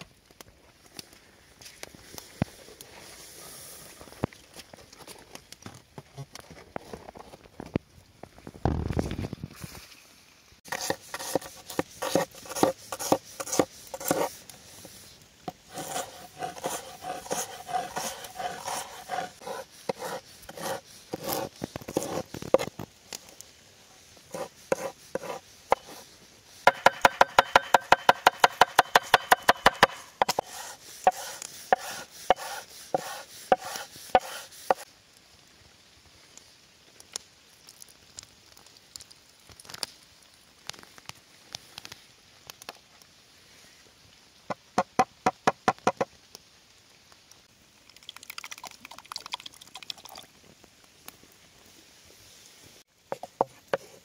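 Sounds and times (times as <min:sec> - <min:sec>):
knife chopping on wooden board: 0:26.7 - 0:34.8.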